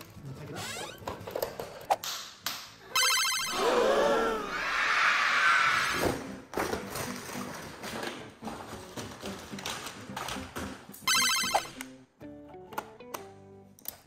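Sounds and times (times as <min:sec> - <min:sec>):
bright ringing tone: 0:03.0 - 0:03.6, 0:11.1 - 0:11.7
electronic ringtone tune: 0:03.0 - 0:03.6, 0:11.1 - 0:11.8.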